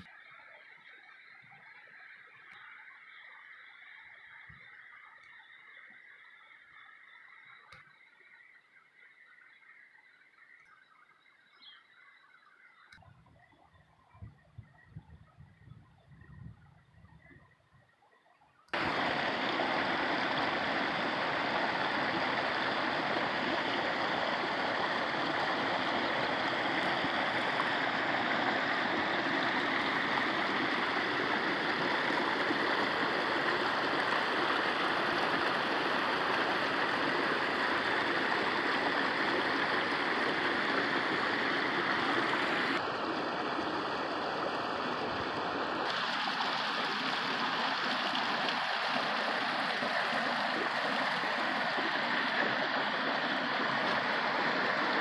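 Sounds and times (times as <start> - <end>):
creek rushing over boulders: 18.7 - 55.0.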